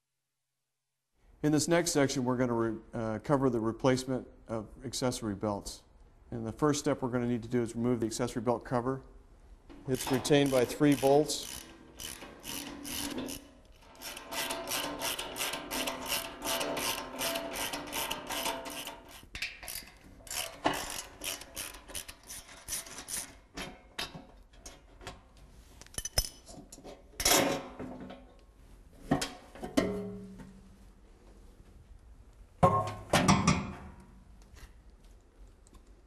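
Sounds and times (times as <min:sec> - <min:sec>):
hand ratchet clicking: 0:09.9 - 0:23.4.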